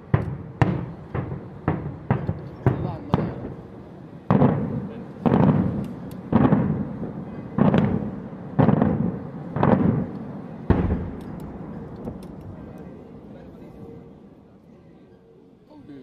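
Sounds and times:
firework shells banging: 0:07.6 - 0:13.0.

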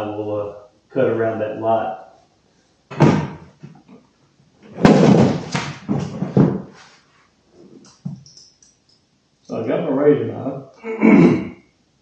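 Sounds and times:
sharp knock: 0:02.9 - 0:03.4, 0:04.8 - 0:06.6
rustling and scraping handling noise: 0:04.6 - 0:08.8.

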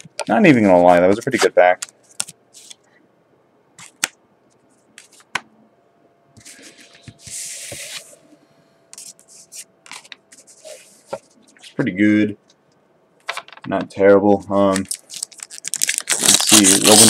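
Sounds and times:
cards tapped and set down: 0:13.2 - 0:13.7
cards rustling together: 0:14.7 - 0:17.0.

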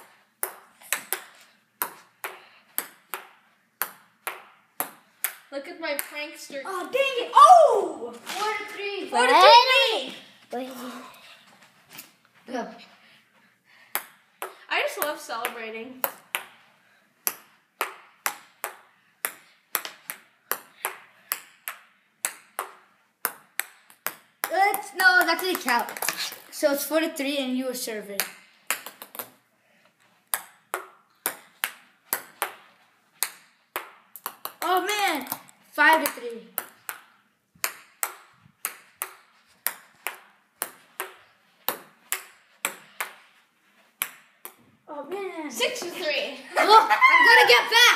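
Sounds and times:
table tennis ball hits: 0:00.0 - 0:06.4, 0:13.9 - 0:16.6, 0:17.2 - 0:26.4, 0:28.2 - 0:29.4, 0:30.3 - 0:44.7.

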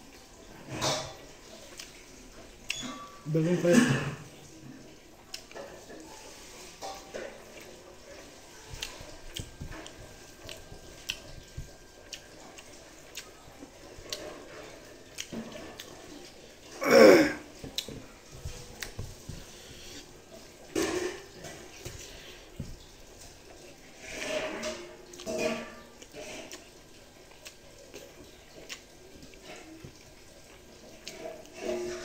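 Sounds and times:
chewing and lip smacks: 0:01.6 - 0:02.0, 0:05.2 - 0:05.6, 0:07.5 - 0:16.4, 0:17.6 - 0:17.9, 0:26.0 - 0:30.1.

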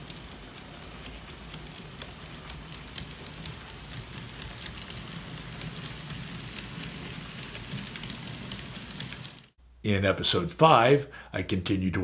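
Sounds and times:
model train motor hum: 0:00.0 - 0:09.5
train wheels clicking over rail joints: 0:00.0 - 0:09.5.

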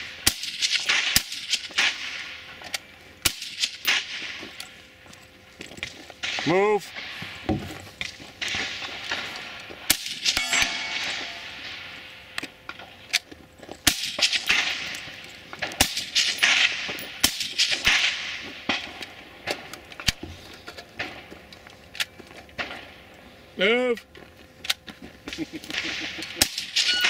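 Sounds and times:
rifle shots: 0:00.2 - 0:02.4, 0:08.4 - 0:12.3, 0:13.8 - 0:19.0, 0:25.7 - 0:27.0.

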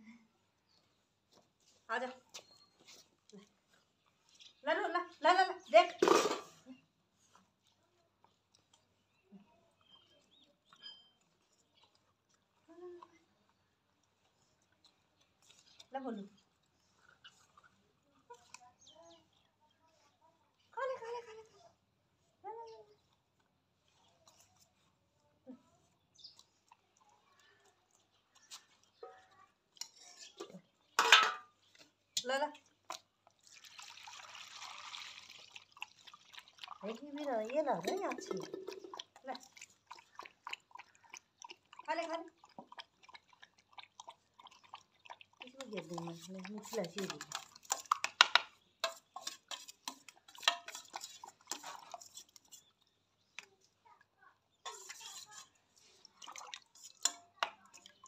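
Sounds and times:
spoon clinking against steel bowl: 0:29.8 - 0:31.5, 0:46.6 - 0:52.6, 0:54.6 - 0:55.5
metal plate clattering: 0:31.0 - 0:31.5.

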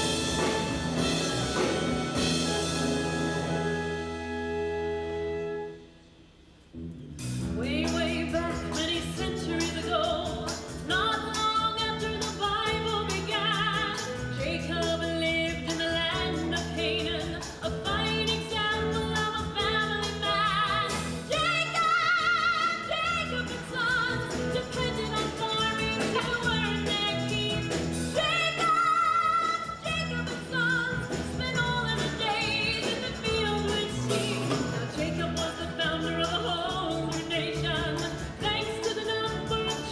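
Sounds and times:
pit orchestra playing: 0:00.0 - 0:06.1.

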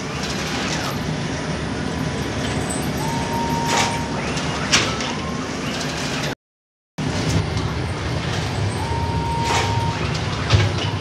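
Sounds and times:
bread machine mechanical rumble: 0:00.0 - 0:06.4, 0:07.0 - 0:11.0
short machine whine: 0:02.4 - 0:06.3, 0:08.4 - 0:11.0.

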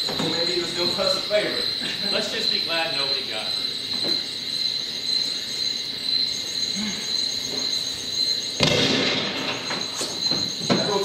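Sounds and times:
cricket chirping: 0:00.0 - 0:11.0.

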